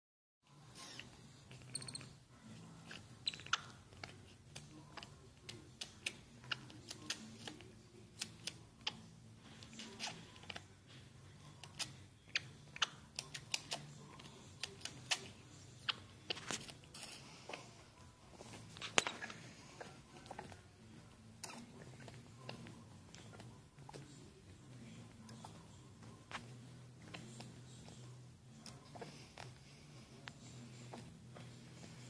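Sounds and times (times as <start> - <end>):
low steady murmur: 0.5 - 32.0
monkey mouth clicking and smacking: 11.6 - 17.2.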